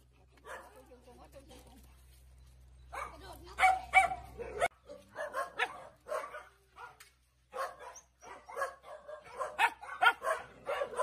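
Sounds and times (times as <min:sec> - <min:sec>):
dogs barking: 0:00.4 - 0:00.9, 0:02.9 - 0:11.0.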